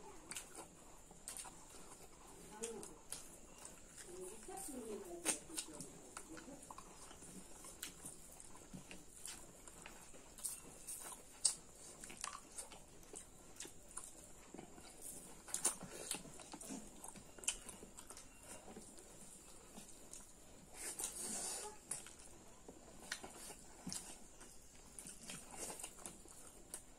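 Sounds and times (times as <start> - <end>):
chewing and wet mouth smacks: 0.0 - 26.9.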